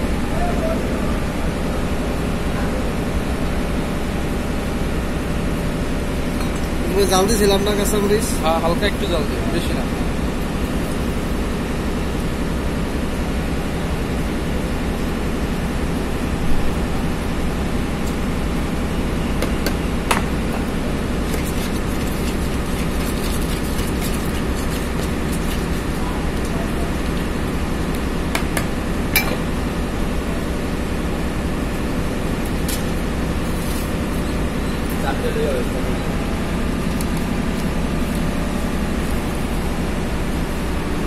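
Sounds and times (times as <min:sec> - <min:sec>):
street rumble and hiss: 0:00.0 - 0:41.0.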